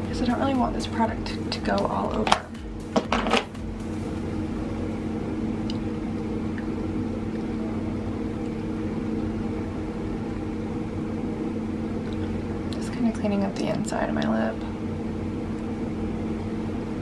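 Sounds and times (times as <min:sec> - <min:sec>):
motor humming: 0:00.0 - 0:17.0.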